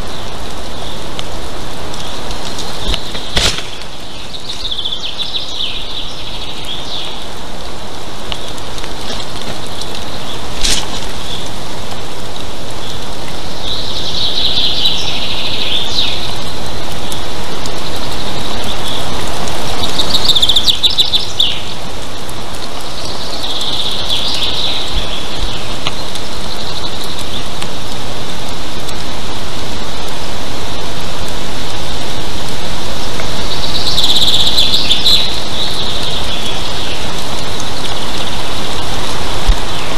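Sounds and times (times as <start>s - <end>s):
loud steady rushing noise: 27.3s - 39.9s.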